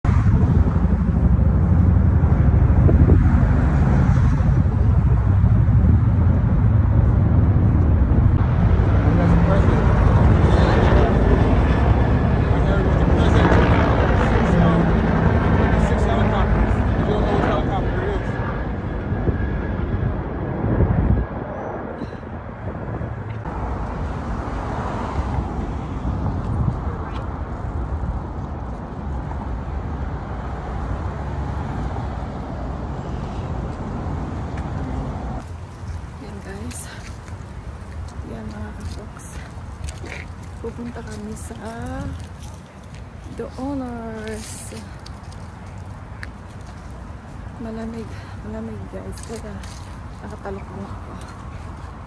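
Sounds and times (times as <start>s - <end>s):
road traffic: 0.0s - 52.0s
wind buffeting microphone: 0.0s - 52.0s.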